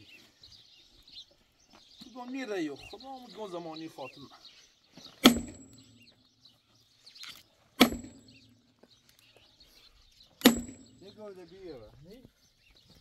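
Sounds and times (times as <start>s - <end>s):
sledgehammer striking a log: 5.2s - 6.0s, 7.8s - 8.5s, 10.4s - 11.1s.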